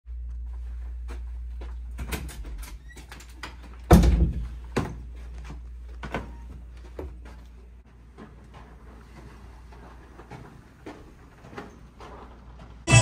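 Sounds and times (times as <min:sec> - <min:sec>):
steady low hum: 0:00.1 - 0:02.8.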